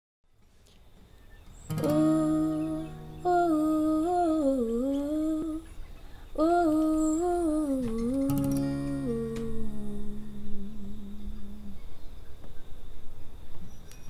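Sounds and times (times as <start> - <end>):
strummed acoustic guitar chord: 1.7 - 4.3, 7.8 - 9.9
woman singing wordless melody: 1.7 - 12.2.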